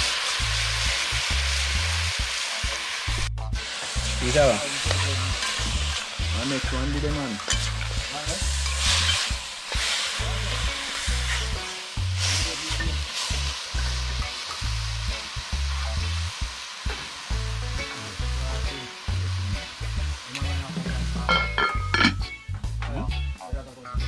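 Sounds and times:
meat sizzling in oil: 0.0 - 22.3
background music beat: 0.0 - 24.0
spoon stirring in metal pot: 4.8 - 6.2, 7.3 - 11.6.

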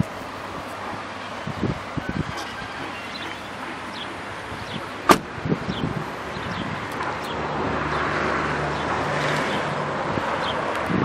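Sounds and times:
birds chirping: 0.6 - 8.1
car door shutting: 5.0 - 5.4.

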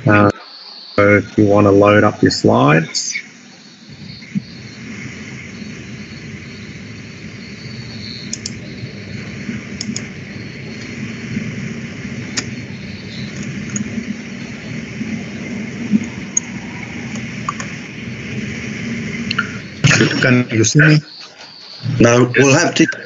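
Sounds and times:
background hiss and low rumble: 0.0 - 21.2
faint clicks: 8.3 - 8.6, 9.8 - 10.1, 12.3 - 12.6, 17.1 - 17.8, 19.3 - 19.6.

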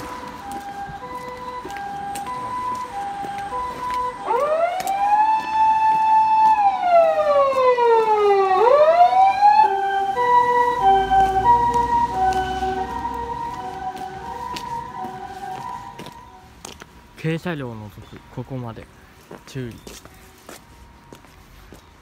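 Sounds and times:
hi-lo siren: 0.0 - 16.5
wailing siren: 0.0 - 16.5.

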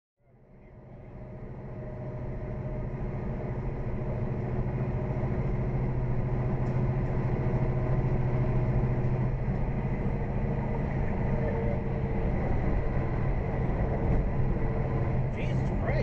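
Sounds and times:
truck diesel engine drone: 0.2 - 16.0
road noise: 0.5 - 16.0.

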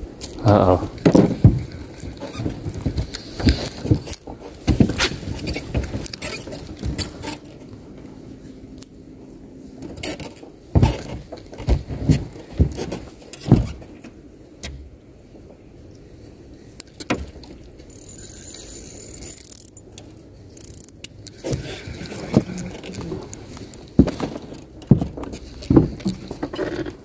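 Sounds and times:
fishing tackle clicking and rattling: 16.8 - 21.4.

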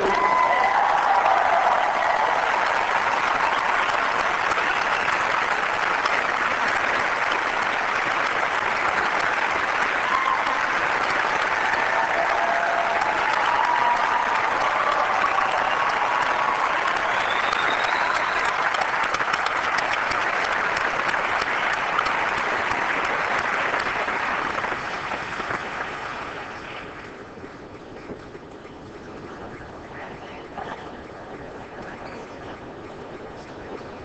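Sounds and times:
large audience applauding: 0.0 - 27.1.

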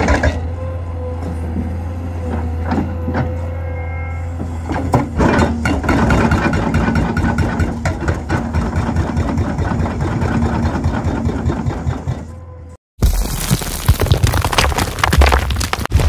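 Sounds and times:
hydraulic hammer pounding ground: 4.3 - 12.4.

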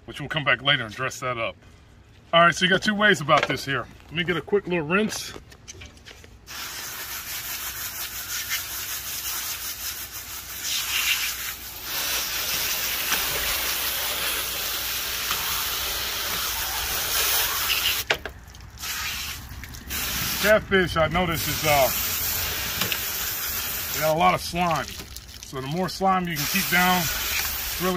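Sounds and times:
hose spraying water onto metal: 6.5 - 27.9.

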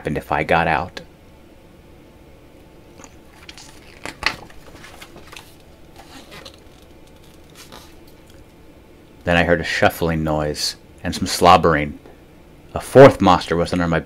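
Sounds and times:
book page rustling: 3.0 - 8.3.

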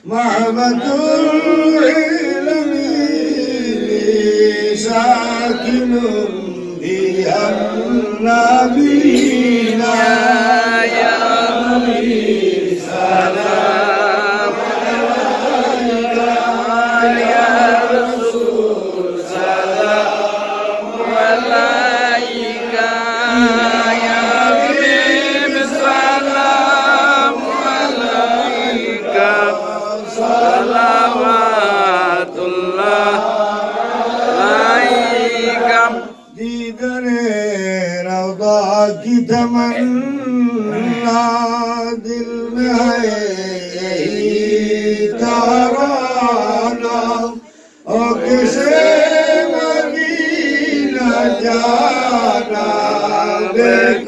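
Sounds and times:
men chanting devotional song: 0.0 - 54.0.

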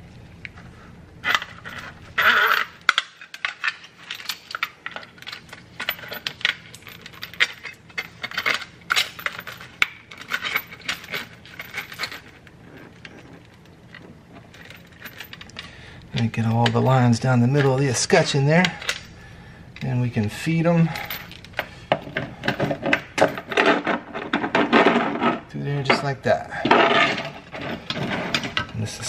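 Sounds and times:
metal clicks and rattles: 1.2 - 16.9, 21.0 - 26.0
rustling scrape: 26.8 - 28.6.

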